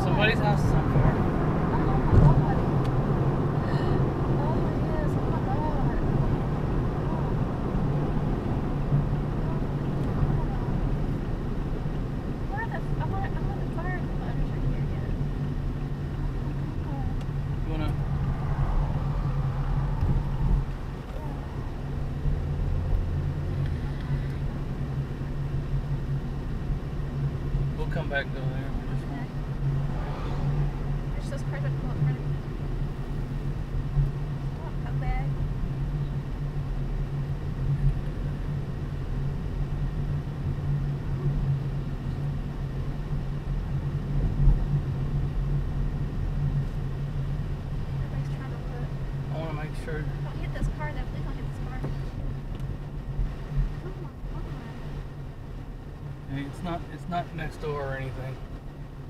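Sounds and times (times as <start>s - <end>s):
car engine and tyres hum: 0.0s - 59.0s
deeper drone: 28.3s - 33.0s.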